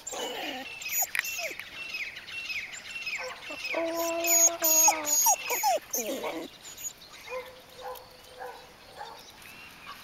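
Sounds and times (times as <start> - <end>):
bird chirping: 0.0 - 10.0.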